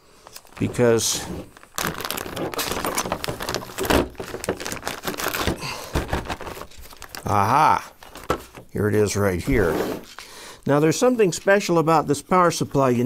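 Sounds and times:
plastic bag crinkling: 0.2 - 10.2.

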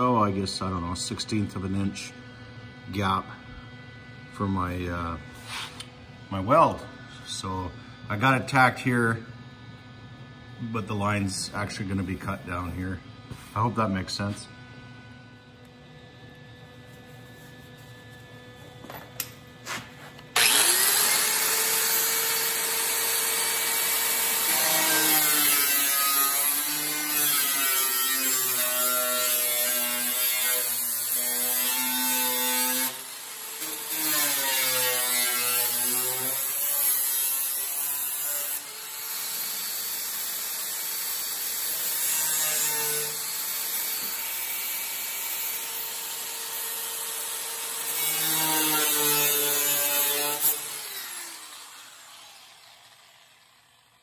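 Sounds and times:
angle grinder cutting sheet steel: 19.7 - 54.0.

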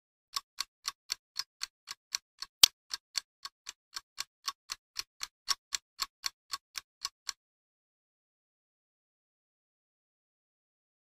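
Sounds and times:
clock ticking: 0.3 - 7.4.

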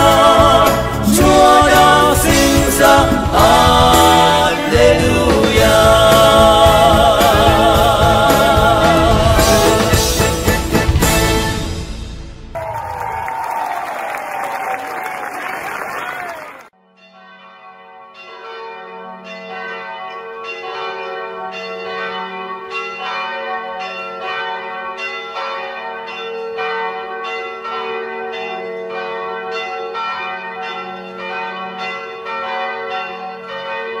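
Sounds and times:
bells ringing: 16.9 - 34.0.

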